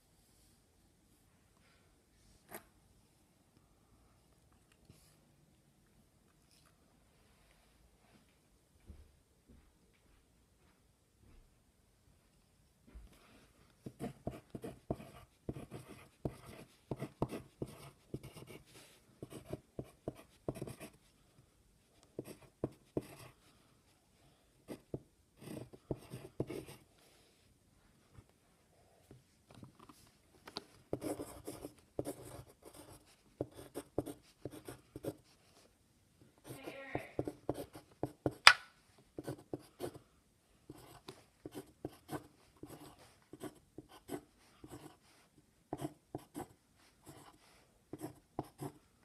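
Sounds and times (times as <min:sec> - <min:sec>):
pencil scratching on paper: 0:13.8 - 0:21.2, 0:22.2 - 0:23.5, 0:24.7 - 0:26.9, 0:30.9 - 0:35.7, 0:36.4 - 0:38.6, 0:39.2 - 0:40.0, 0:40.7 - 0:48.8.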